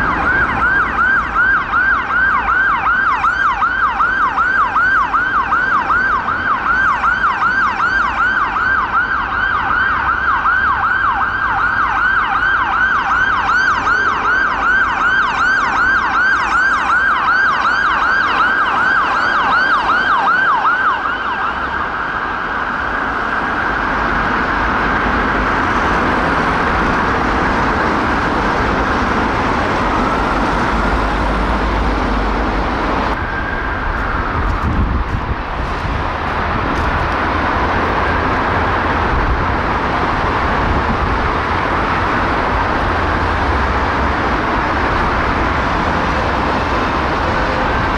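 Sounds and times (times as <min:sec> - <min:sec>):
ambulance siren yelping: 0:00.0 - 0:35.6
traffic noise: 0:00.0 - 0:47.9.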